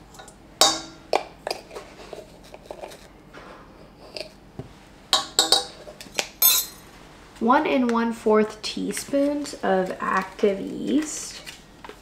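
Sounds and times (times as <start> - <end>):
metal spoons clinking: 0.1 - 1.0, 5.2 - 5.8, 6.4 - 6.8.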